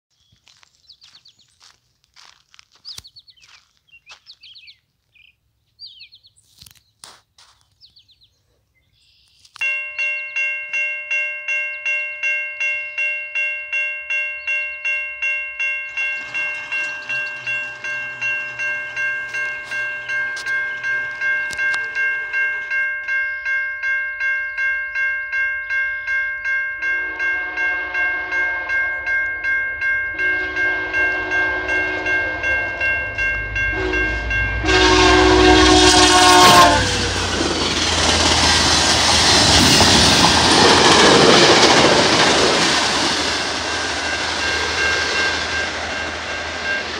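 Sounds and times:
railway crossing bell ringing: 9.6 - 46.9
train rumble: 14.8 - 23.6, 26.8 - 46.9
train horn blasts: 26.8 - 29.3, 30.1 - 37.4.

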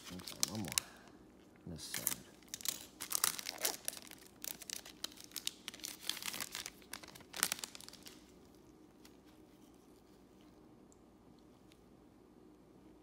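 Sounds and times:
foil wrapper crinkling and tearing: 0.0 - 1.0, 1.8 - 9.2.

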